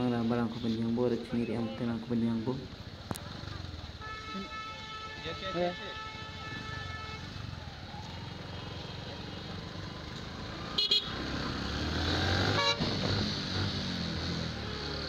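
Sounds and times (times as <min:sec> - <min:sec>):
traffic engines running: 0:00.0 - 0:15.0
car horn beeps: 0:04.0 - 0:07.3, 0:10.8 - 0:11.2, 0:12.5 - 0:13.0.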